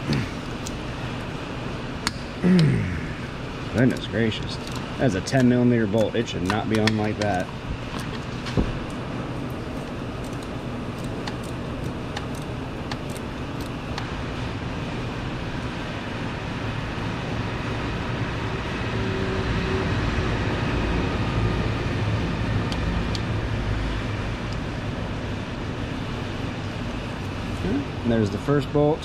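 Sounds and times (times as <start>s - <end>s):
low rumble and hiss: 0.0s - 29.0s
wrench clicking: 3.8s - 7.3s, 9.8s - 14.1s.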